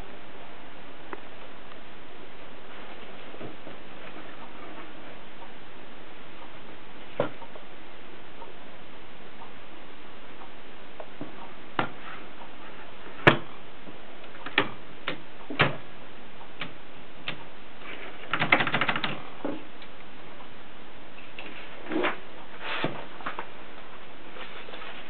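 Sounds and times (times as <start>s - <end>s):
rattling run of clicks: 18.2s - 19.2s.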